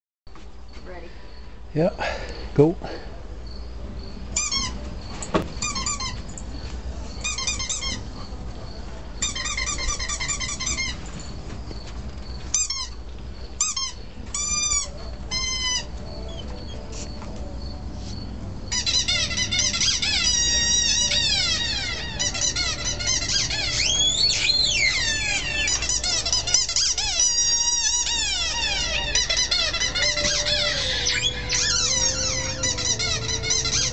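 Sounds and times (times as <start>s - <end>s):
squeaky toy squeaks from phone: 4.4s - 4.8s, 5.6s - 6.3s, 7.2s - 8.1s, 9.2s - 11.1s, 13.6s - 16.8s, 18.7s - 33.9s.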